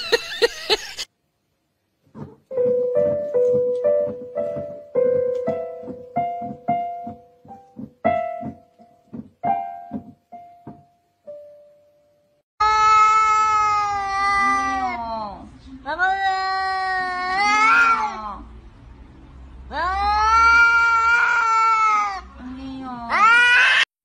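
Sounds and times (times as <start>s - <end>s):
electronic keyboard notes: 2.5s - 12.2s
cat meowing: 17.0s - 18.2s, 19.8s - 22.3s, 23.1s - 23.9s.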